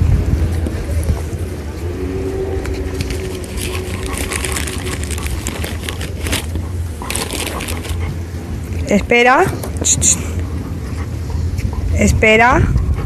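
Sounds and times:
passing vehicle hum: 0.0s - 13.0s
road traffic rumble: 0.0s - 13.0s
crackling and rustling: 2.5s - 8.9s.

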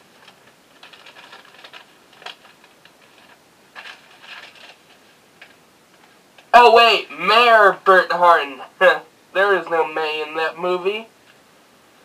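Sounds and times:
faint rustling and scratching: 0.0s - 6.2s.

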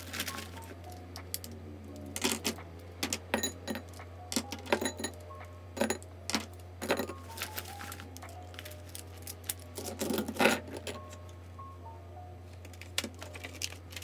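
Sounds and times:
plastic pens clacking together: 0.1s - 5.2s.

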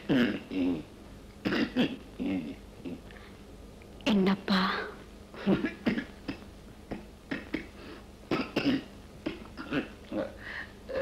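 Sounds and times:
man coughing: 1.4s - 2.0s, 5.4s - 10.4s.

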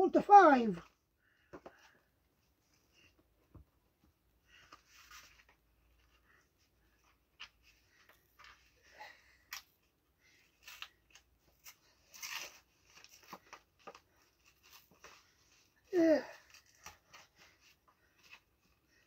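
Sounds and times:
cardboard envelope ripping and rustling: 10.5s - 15.3s.

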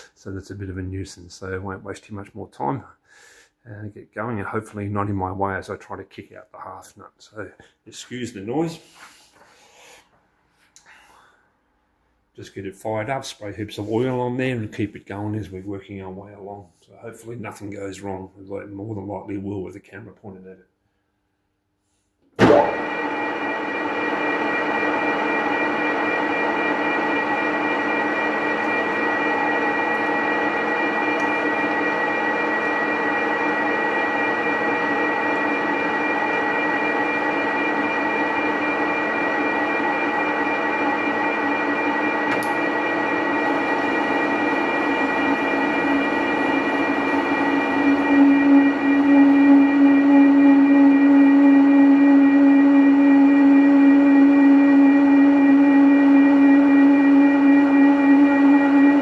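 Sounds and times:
lathe gears whining: 22.6s - 59.0s.

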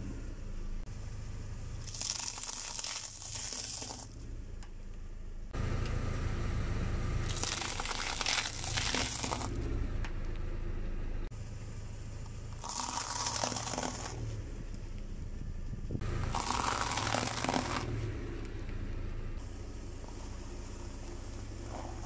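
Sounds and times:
car engine humming: 0.0s - 22.0s
tyre crushing brittle objects: 1.8s - 4.2s, 7.3s - 9.5s, 12.6s - 14.2s, 16.3s - 17.9s.

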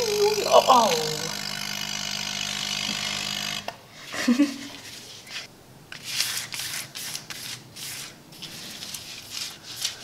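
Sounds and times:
electric air pump running: 0.0s - 3.8s.

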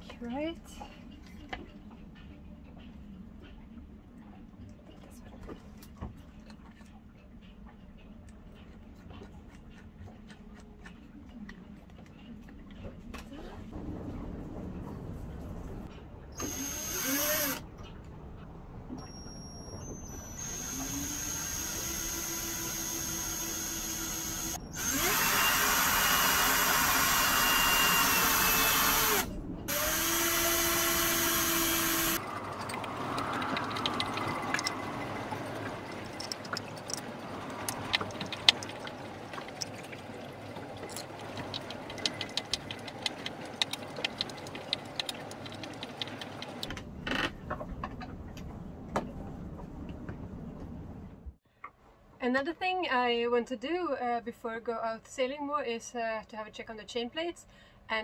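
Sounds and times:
cordless drill running: 16.4s - 17.6s, 20.1s - 32.2s.

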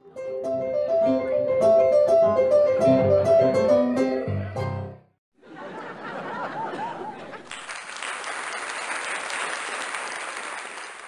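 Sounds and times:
audience applauding: 7.1s - 11.0s.

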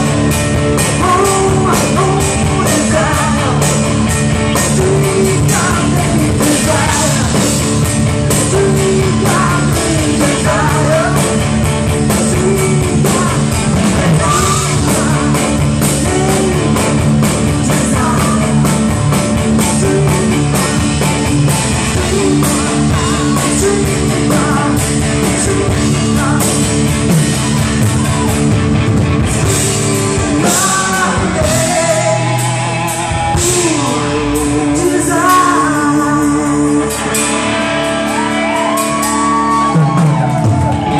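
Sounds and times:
bass: 0.0s - 40.9s
electric guitars: 0.0s - 40.9s
woman singing: 1.0s - 3.7s, 8.4s - 11.4s, 12.2s - 16.8s, 30.4s - 32.6s, 33.2s - 37.2s.

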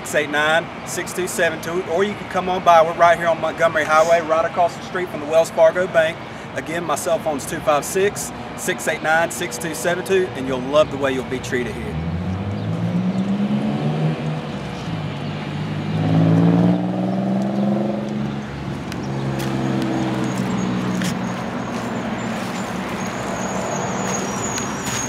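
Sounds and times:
traffic engine hum: 0.0s - 25.0s
vehicle engine passing: 11.6s - 25.0s.

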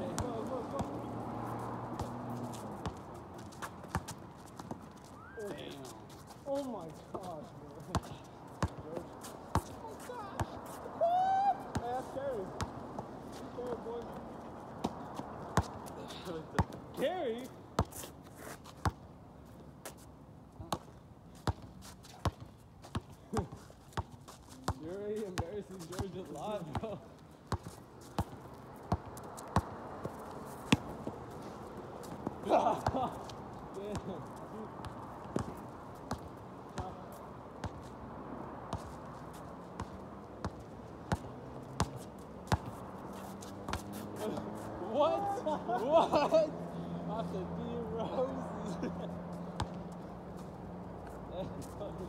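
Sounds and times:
basketball bouncing on hard court: 9.5s - 9.8s, 35.3s - 36.9s, 39.8s - 42.8s.

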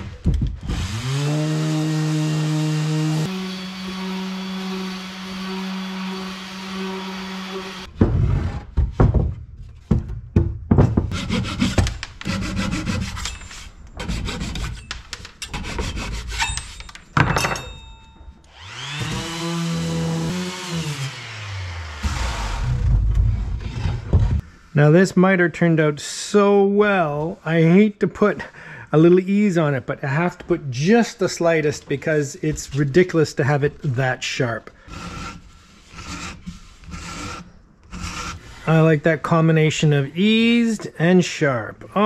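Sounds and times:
orbital sander running on wood: 0.7s - 7.9s, 18.5s - 22.8s
knocks on wood: 8.8s - 12.1s.

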